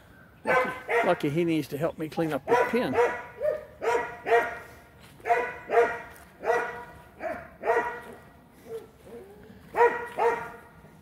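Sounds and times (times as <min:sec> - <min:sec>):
dog barking: 0:00.4 - 0:01.2, 0:02.5 - 0:08.9, 0:09.7 - 0:10.7.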